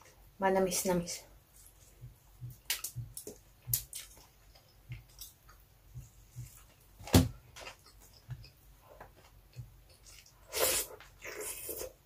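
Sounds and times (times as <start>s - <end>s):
wet chewing: 1.7s - 6.7s, 7.6s - 12.0s.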